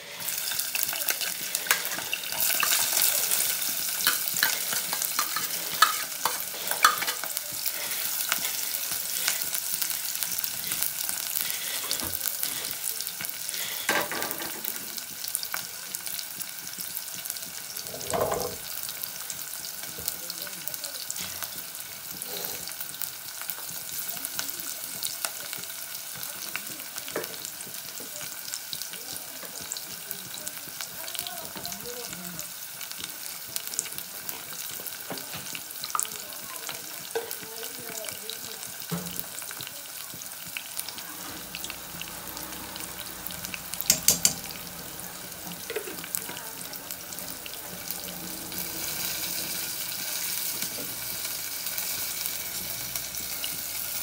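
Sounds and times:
onions sizzling in hot oil: 0.0 - 54.0
spoon clinking on plate and pan: 4.0 - 7.3, 43.8 - 44.5.

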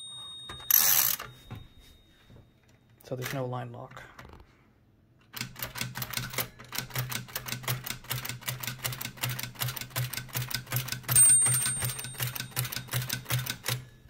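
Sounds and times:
typewriter margin bell ringing: 0.0 - 1.7, 10.9 - 13.8.

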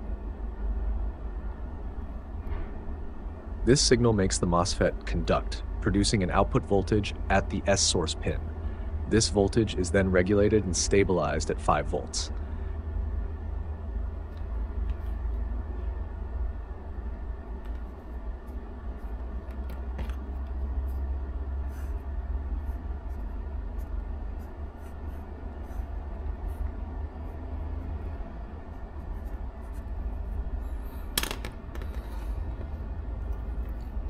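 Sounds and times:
steady low hum: 0.0 - 34.0
pen set down on bench: 19.5 - 20.2, 31.2 - 32.3
pen scratching on paper: 21.6 - 27.8, 28.7 - 30.4.

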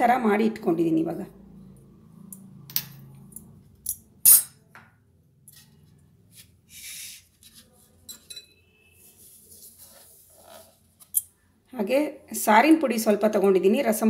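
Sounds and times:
ceramic dishes clinking: 8.0 - 8.6.

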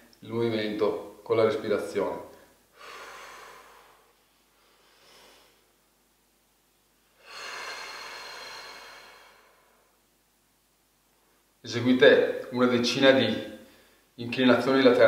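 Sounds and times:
man breathing: 2.4 - 5.8, 7.2 - 10.0, 13.6 - 14.2.

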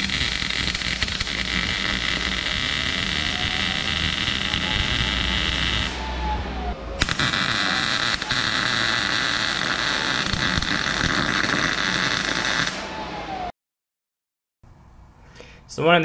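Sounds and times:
sharp welding pops: 0.0 - 6.0, 7.0 - 12.9
welder arc crackling: 0.0 - 6.0, 7.0 - 12.8.

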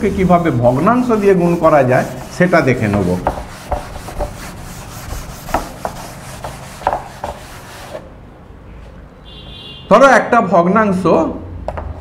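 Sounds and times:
eraser rubbing on blackboard: 0.0 - 8.1.

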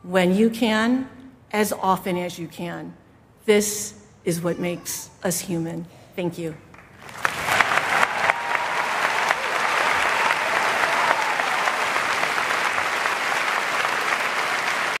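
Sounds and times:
large audience applauding: 6.8 - 15.0.

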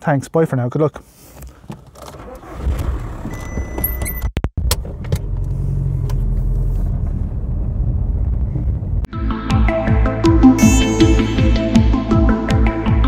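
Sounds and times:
car engine starting and running: 1.4 - 9.0.

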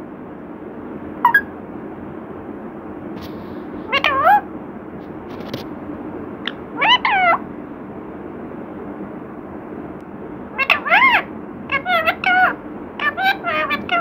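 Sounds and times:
parakeet calling: 3.9 - 4.4, 6.4 - 7.4, 10.6 - 14.0.

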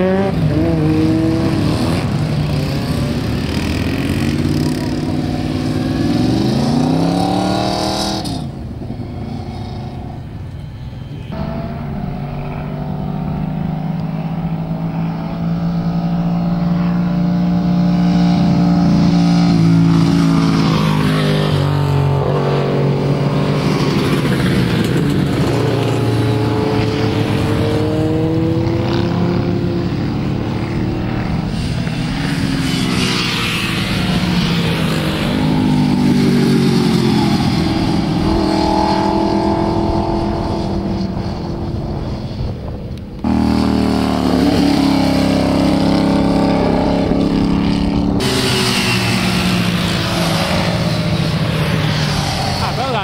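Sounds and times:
motorcycles racing past: 0.0 - 53.0.

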